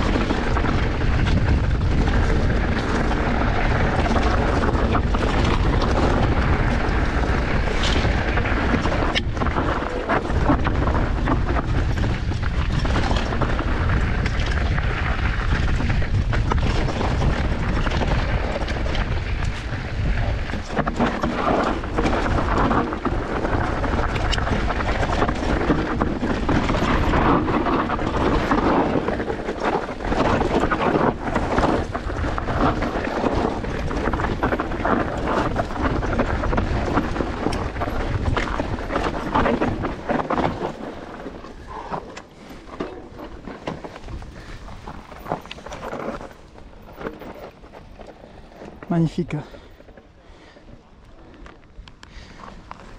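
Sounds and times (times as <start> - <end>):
bike knocking and rattling: 0.0 - 52.9
wind and tyres rumbling: 0.0 - 52.9.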